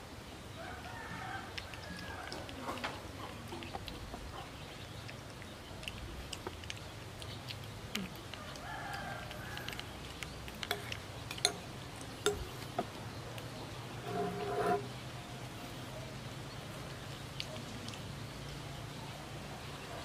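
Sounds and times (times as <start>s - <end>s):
metal spoon scraping ceramic bowl: 10.7s - 12.5s, 13.9s - 15.0s.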